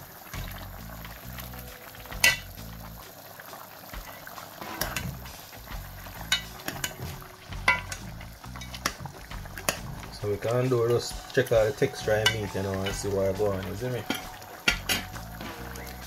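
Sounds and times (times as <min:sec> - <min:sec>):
liquid bubbling in pot: 0:00.0 - 0:16.0
metal ladle clinking against pot: 0:02.2 - 0:02.5, 0:06.3 - 0:07.1, 0:07.7 - 0:08.0, 0:14.0 - 0:15.2.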